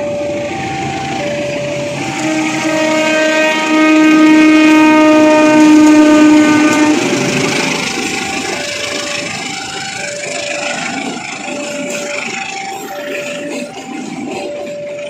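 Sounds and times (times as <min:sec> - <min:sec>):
level-crossing warning tone: 0:00.0 - 0:15.0
train wheels over rail joints: 0:00.0 - 0:15.0
locomotive air horn blast: 0:02.0 - 0:07.7.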